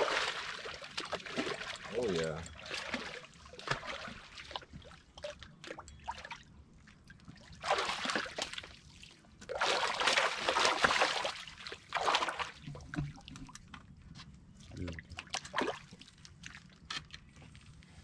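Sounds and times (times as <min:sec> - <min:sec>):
water splashing in shallows: 0:00.0 - 0:06.4, 0:07.4 - 0:13.4, 0:15.0 - 0:16.7.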